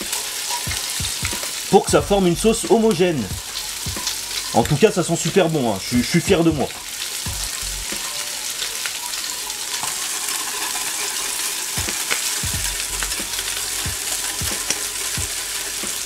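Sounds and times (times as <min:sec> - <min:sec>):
fish sizzling in a frying pan: 0:00.0 - 0:16.0.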